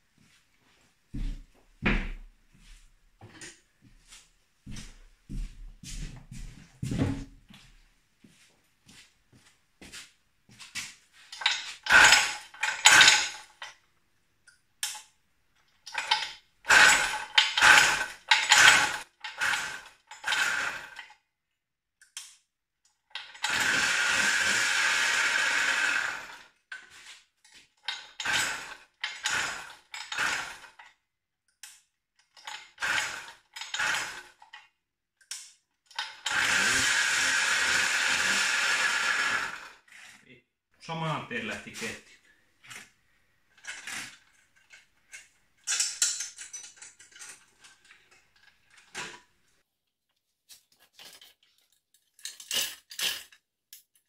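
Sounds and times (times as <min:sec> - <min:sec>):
small two-stroke engine buzzing: 0:16.7 - 0:21.0, 0:23.4 - 0:26.5, 0:32.8 - 0:34.3, 0:36.1 - 0:40.2.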